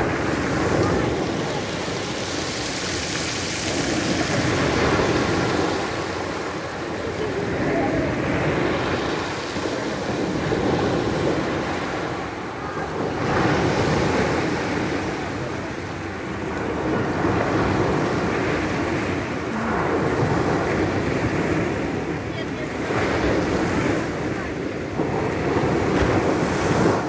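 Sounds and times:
waves breaking on pebbles: 0:00.0 - 0:27.0
wind buffeting microphone: 0:00.0 - 0:27.0.

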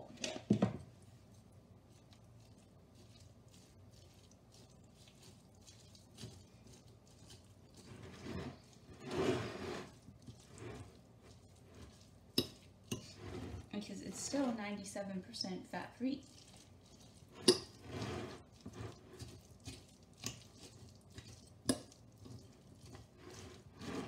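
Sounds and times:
fork scraping glass dish: 0:07.8 - 0:11.0, 0:11.7 - 0:14.4, 0:17.3 - 0:19.4, 0:22.8 - 0:24.0.

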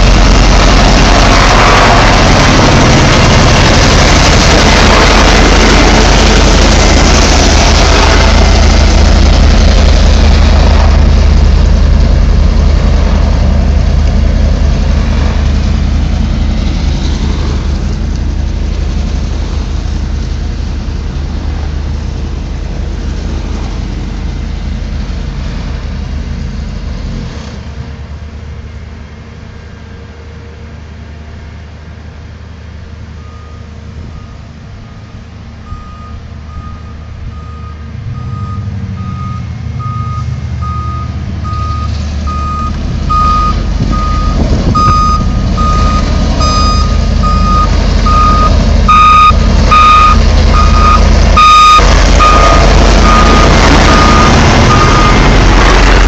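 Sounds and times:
diesel engine rumble: 0:00.0 - 0:56.0
reversing alarm beeping: 0:33.2 - 0:55.7.

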